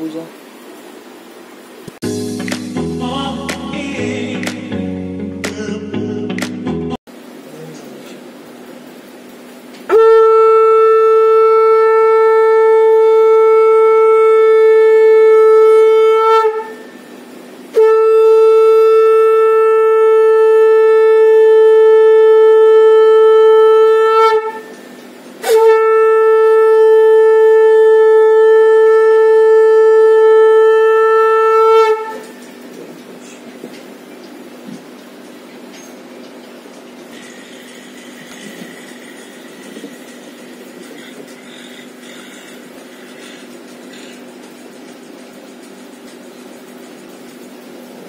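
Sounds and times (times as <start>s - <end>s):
conch shell blasts: 9.9s - 17.0s, 17.7s - 24.8s, 25.4s - 32.4s.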